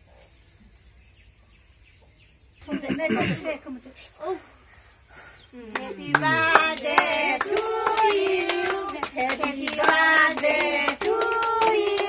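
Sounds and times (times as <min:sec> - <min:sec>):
hand claps: 0:05.7 - 0:12.0
women and children singing: 0:05.7 - 0:12.0.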